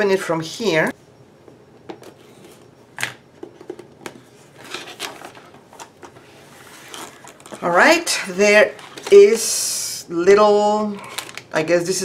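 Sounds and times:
cardboard and paper rustling: 4.1s - 8.0s.

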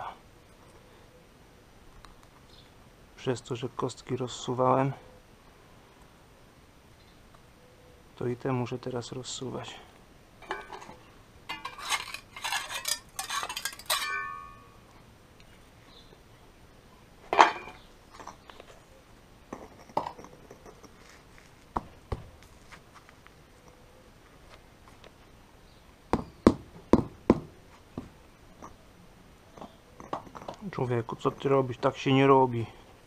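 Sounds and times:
paving blocks clinking and scraping: 10.4s - 14.8s, 19.5s - 21.7s, 29.6s - 31.8s.

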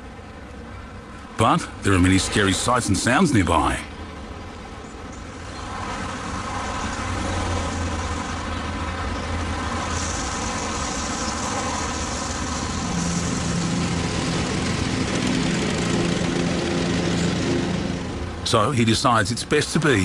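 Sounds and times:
engine hum: 0.0s - 20.0s
high hiss: 9.4s - 14.5s
lawn mower engines running: 12.0s - 20.0s.

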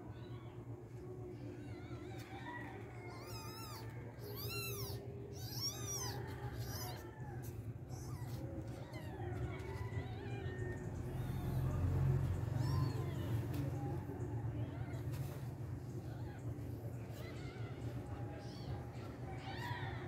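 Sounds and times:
kitten mewing: 3.1s - 10.2s.

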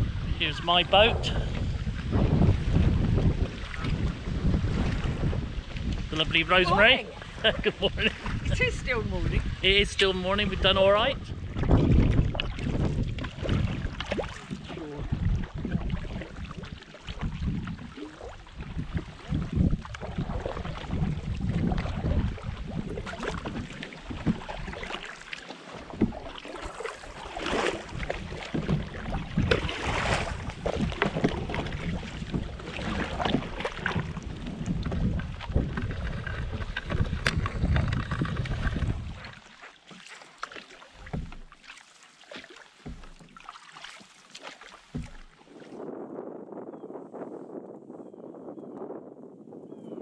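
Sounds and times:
wind rumbling on microphone: 0.0s - 39.5s, 41.0s - 41.5s, 44.8s - 50.0s
paddle strokes splashing water: 0.0s - 46.2s.

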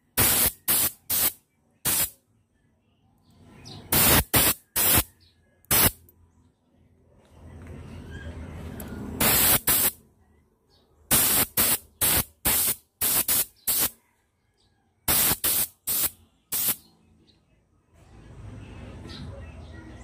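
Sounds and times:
spray paint hissing bursts: 0.1s - 2.2s, 3.9s - 5.1s, 5.7s - 6.0s, 9.2s - 10.0s, 11.1s - 14.0s, 15.1s - 16.8s.

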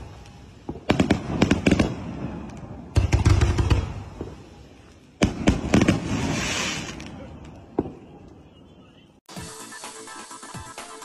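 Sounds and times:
fireworks rapid bangs: 0.0s - 4.5s, 5.2s - 8.1s.

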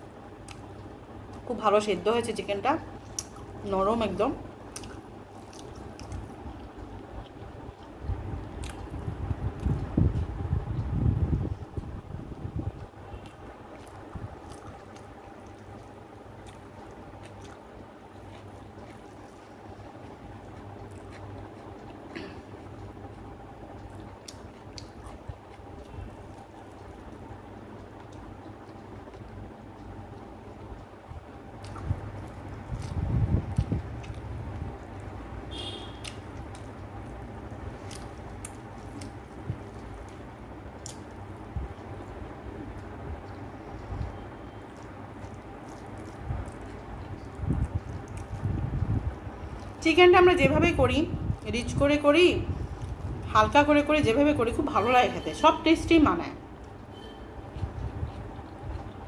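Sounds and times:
steady low hum: 0.0s - 59.0s
chewing: 4.7s - 10.2s, 12.7s - 35.2s, 36.0s - 49.8s, 56.6s - 59.0s
wet squishing of rice mixed by hand: 12.8s - 49.8s.

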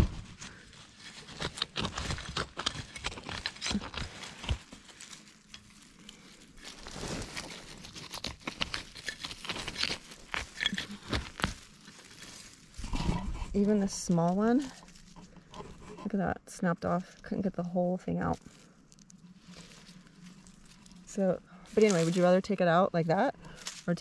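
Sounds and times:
rustling and scraping in leaf litter: 0.0s - 16.2s, 16.9s - 24.0s.

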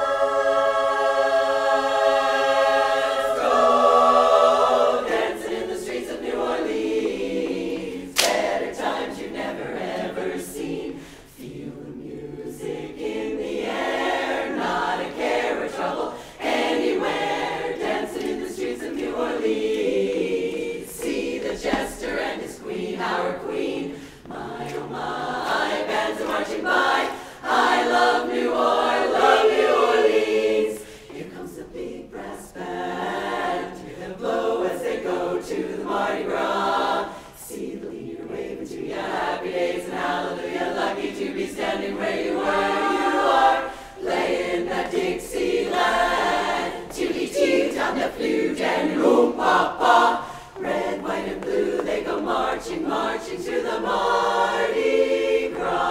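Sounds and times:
women's choir singing: 0.0s - 55.9s
singers breathing: 10.9s - 11.4s, 16.1s - 16.4s, 23.9s - 24.3s, 27.1s - 27.5s, 30.8s - 31.1s, 37.0s - 37.4s, 43.6s - 44.0s, 50.2s - 50.6s.

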